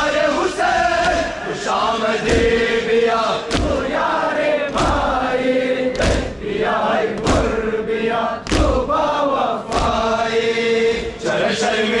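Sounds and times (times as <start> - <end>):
men chanting in unison: 0.0 - 12.0
chest-beating thumps: 2.2 - 4.0.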